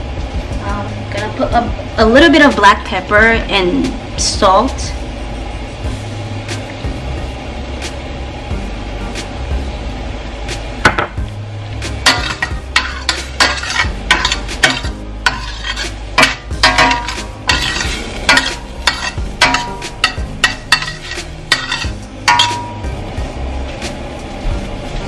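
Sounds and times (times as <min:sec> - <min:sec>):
vegetables sizzling in butter: 0:11.8 - 0:24.0
metal spoon scraping a pan: 0:12.0 - 0:22.9.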